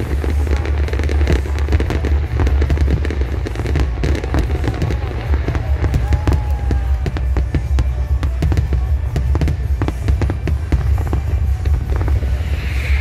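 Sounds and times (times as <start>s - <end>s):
fireworks bursting and crackling: 0.0s - 13.0s
music playing: 0.0s - 13.0s
deep rumble: 10.3s - 13.0s.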